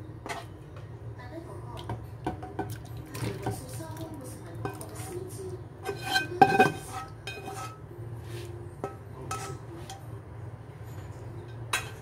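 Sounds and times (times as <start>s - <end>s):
spatula scraping a wok: 0.2s - 0.6s, 5.8s - 10.0s.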